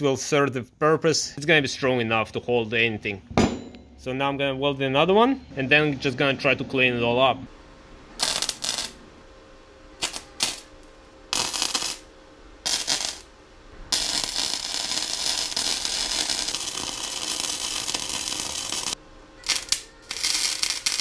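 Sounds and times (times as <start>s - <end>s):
welding arc crackling: 8.2s - 9.0s, 10.0s - 21.0s.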